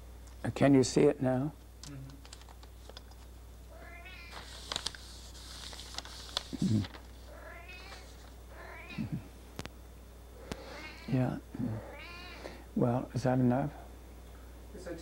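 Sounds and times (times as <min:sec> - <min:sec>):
cat meowing: 0:03.7 - 0:04.4, 0:07.3 - 0:09.2, 0:10.4 - 0:12.6
paper rustling: 0:04.3 - 0:08.4.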